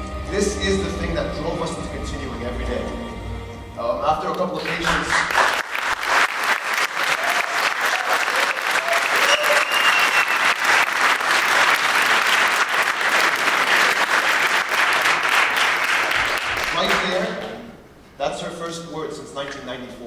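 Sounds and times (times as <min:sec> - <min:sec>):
audience applauding: 0:04.3 - 0:17.2.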